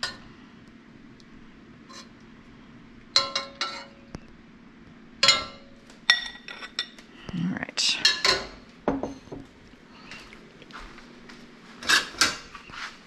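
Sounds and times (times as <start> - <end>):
metal utensil clinking cookware: 3.2 - 4.0, 5.2 - 7.0, 8.0 - 9.3.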